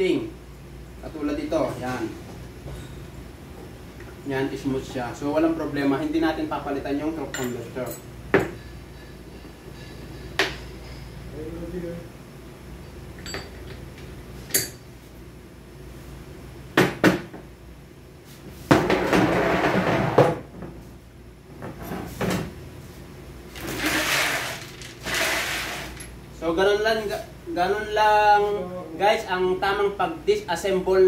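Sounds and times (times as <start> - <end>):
metal parts scraping: 23.5 - 26.1.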